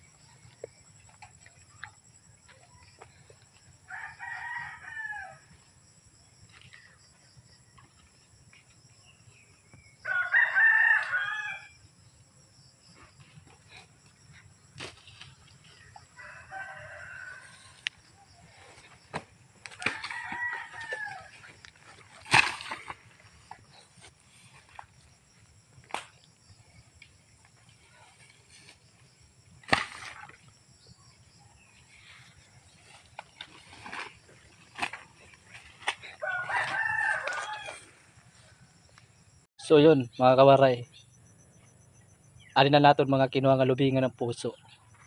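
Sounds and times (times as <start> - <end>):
rooster crowing: 3.8 - 5.5, 10.0 - 11.8, 15.8 - 18.0, 19.8 - 21.5, 36.1 - 38.3.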